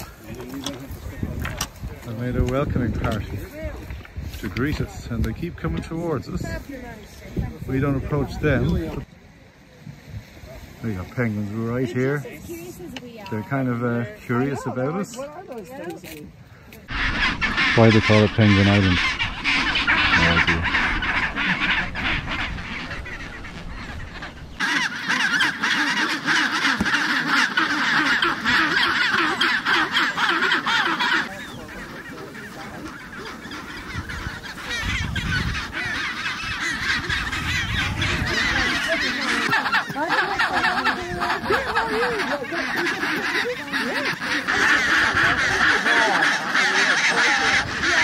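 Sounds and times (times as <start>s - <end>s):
penguin colony honking and braying: 16.8s - 48.0s
loud penguin display call: 16.9s - 48.0s.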